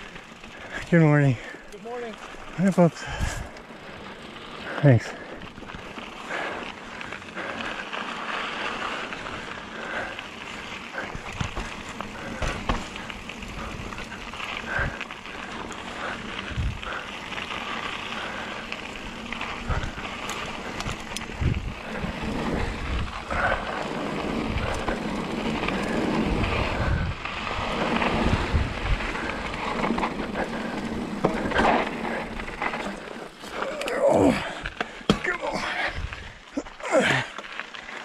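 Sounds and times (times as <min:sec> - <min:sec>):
bike tyres crunching on gravel: 0:00.0 - 0:38.0
bike knocking over bumps: 0:11.0 - 0:14.2, 0:34.7 - 0:35.7
wind on microphone: 0:16.4 - 0:16.9, 0:19.6 - 0:23.6, 0:24.2 - 0:29.9.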